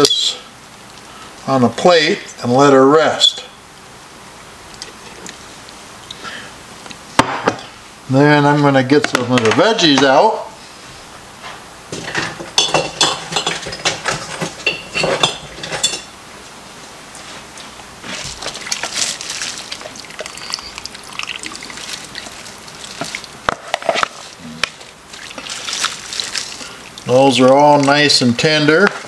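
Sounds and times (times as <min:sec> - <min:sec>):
metal spoon clinking and scraping: 0:12.6 - 0:16.1
liquid sloshing and dripping: 0:18.3 - 0:23.6, 0:24.8 - 0:28.2.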